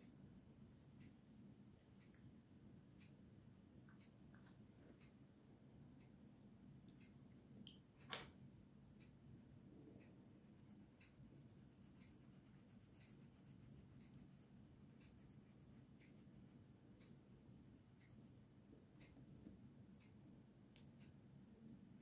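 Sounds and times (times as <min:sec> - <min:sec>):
faint ticks: 0:00.0 - 0:22.0
pencil rubbing on paper: 0:11.5 - 0:16.2.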